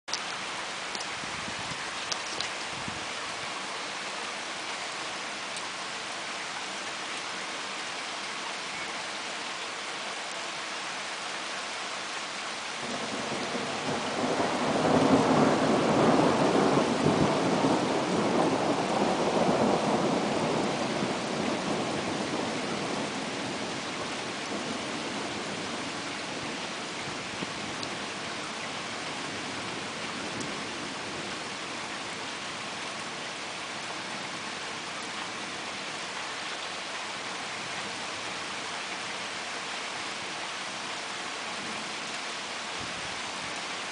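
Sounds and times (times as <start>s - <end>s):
steady rain hiss: 0.1s - 43.9s
thunder rumbling: 12.8s - 27.9s.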